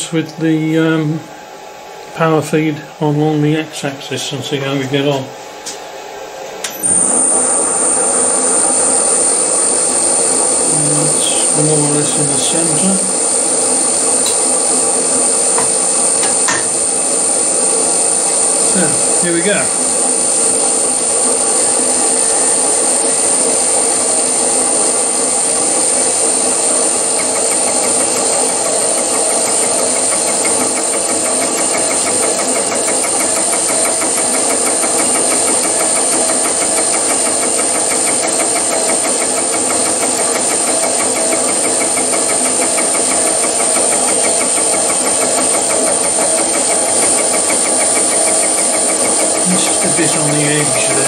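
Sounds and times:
milling machine hum: 4.4s - 51.0s
high steady whine: 6.6s - 51.0s
fly cutter ticking: 27.2s - 51.0s.

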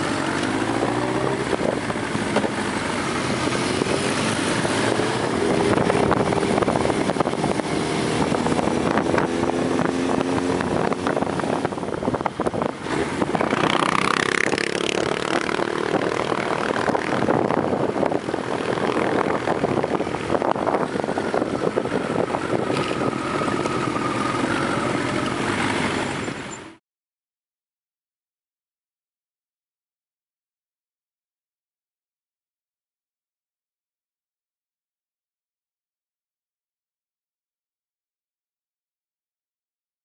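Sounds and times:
wind noise on microphone: 0.0s - 26.6s
motorcycle engine revving: 0.0s - 26.8s.

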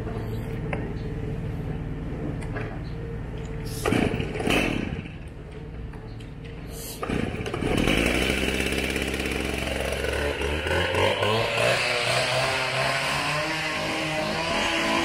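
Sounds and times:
cut-off saw engine idling: 7.0s - 11.7s.

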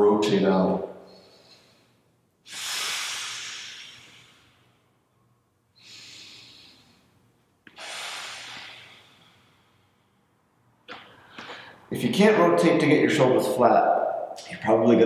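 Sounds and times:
man breathing deeply: 1.0s - 5.1s, 5.7s - 10.4s, 11.0s - 11.9s.

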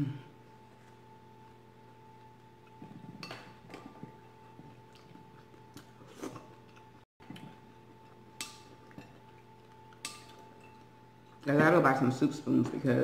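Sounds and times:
faint steady hum: 0.0s - 13.0s
soft chewing: 0.6s - 11.5s.

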